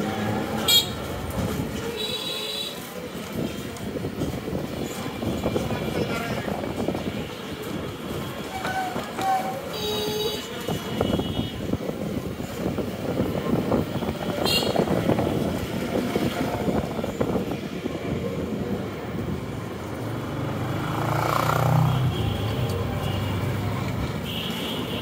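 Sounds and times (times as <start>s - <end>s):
rickshaw rattling and road noise: 0.0s - 25.0s
motor engine passing: 20.0s - 22.0s.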